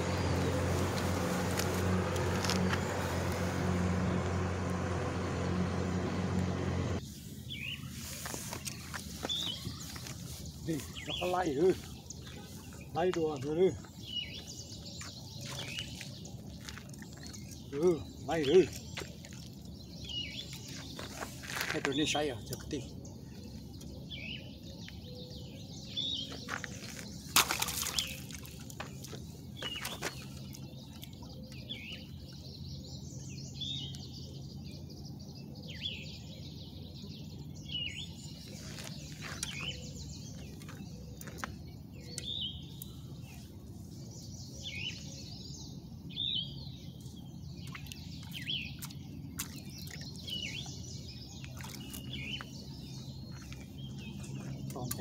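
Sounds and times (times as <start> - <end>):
small birds chirping: 0.0 - 55.0
rustling: 0.3 - 11.0.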